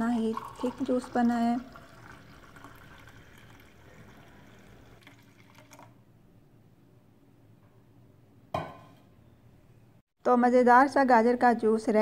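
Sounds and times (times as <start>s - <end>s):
juice pouring into glass: 0.0s - 6.0s.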